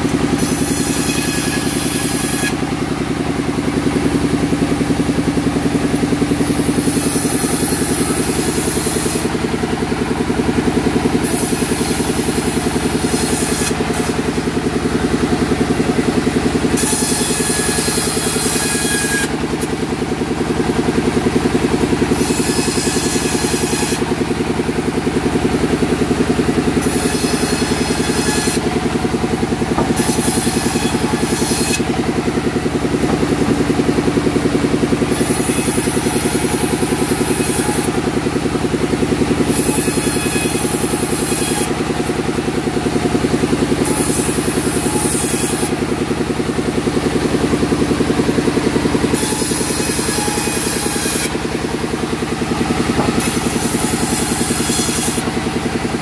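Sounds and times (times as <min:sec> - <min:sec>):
sawmill engine running: 0:00.0 - 0:56.0
high hissing rasp of saw: 0:00.4 - 0:02.6, 0:06.4 - 0:09.3, 0:11.2 - 0:14.1, 0:16.8 - 0:19.4, 0:22.1 - 0:24.1, 0:26.8 - 0:28.6, 0:29.8 - 0:31.9, 0:49.1 - 0:51.4.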